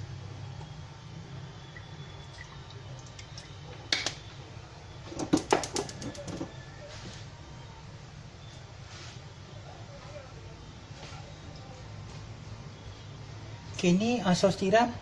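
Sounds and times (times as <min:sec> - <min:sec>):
low steady hum: 0:00.0 - 0:05.3
kitchen items clicking and knocking: 0:05.1 - 0:06.5.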